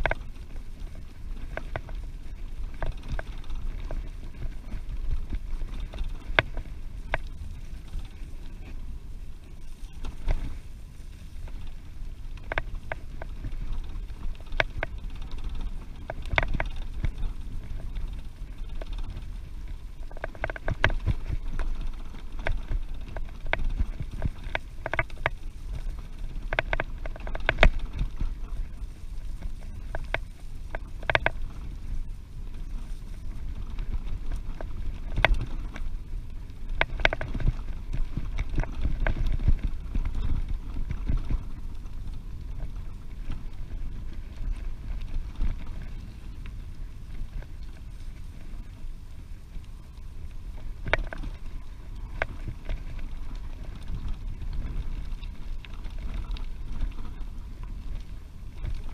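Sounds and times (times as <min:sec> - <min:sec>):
wind rumbling on microphone: 0:00.0 - 0:58.9
sharp clicks and knocks: 0:20.0 - 0:28.2, 0:29.4 - 0:31.6, 0:36.7 - 0:37.6.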